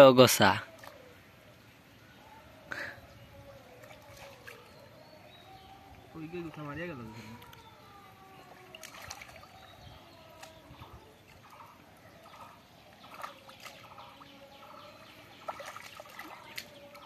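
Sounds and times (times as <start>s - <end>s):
small sharp splashes: 0.8s - 1.0s, 3.7s - 4.8s, 8.6s - 14.3s, 15.3s - 17.0s
muddy water sloshing: 3.6s - 6.6s, 7.3s - 17.0s.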